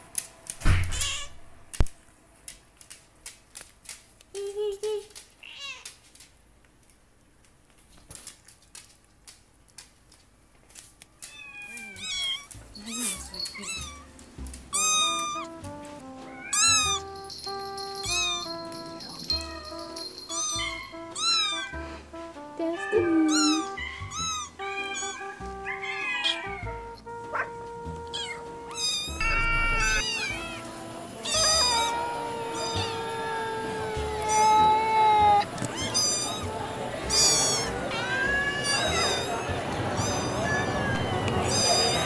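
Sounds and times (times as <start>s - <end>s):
cat meowing: 0.9s - 1.4s, 5.4s - 5.9s, 11.2s - 14.1s, 14.7s - 15.6s, 16.3s - 17.1s, 18.0s - 18.6s, 19.3s - 21.8s, 22.8s - 42.0s
music with held notes: 12.0s - 42.0s
long tone sliding down: 29.1s - 30.1s.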